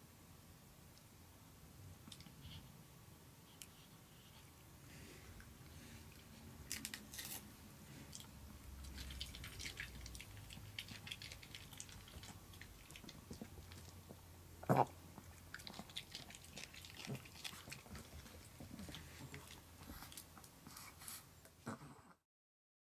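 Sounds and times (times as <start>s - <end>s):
pet chewing crunchy treat: 6.2s - 21.1s.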